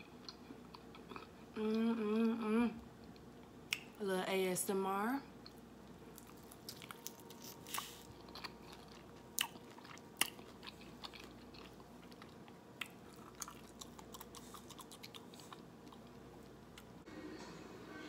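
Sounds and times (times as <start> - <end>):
crunching fried chicken: 6.1 - 16.6.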